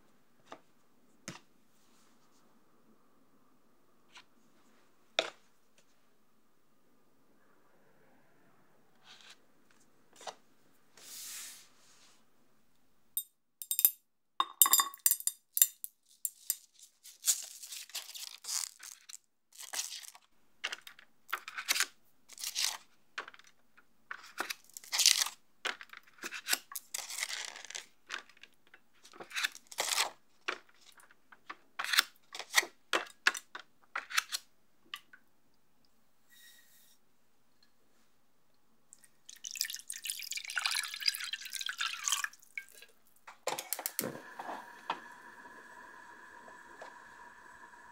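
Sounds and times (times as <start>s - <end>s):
gelatin sheets crinkling and snapping: 16.8s - 20.3s.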